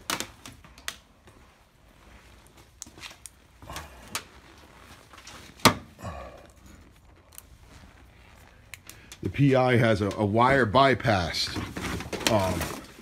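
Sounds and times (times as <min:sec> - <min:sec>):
rustling: 0:00.0 - 0:10.4.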